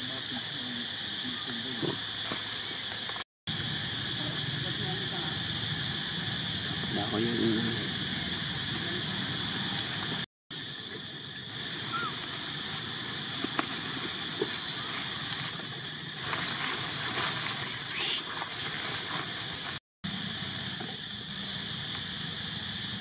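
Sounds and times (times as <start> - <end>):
high-pitched insect drone: 0.0 - 23.0
rustling: 10.8 - 19.8.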